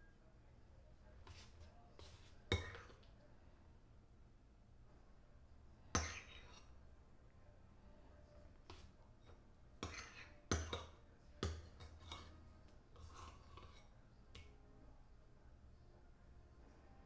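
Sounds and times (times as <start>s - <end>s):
metal spoon clinking against bowl: 2.0s - 3.0s, 6.0s - 6.7s, 9.8s - 12.4s.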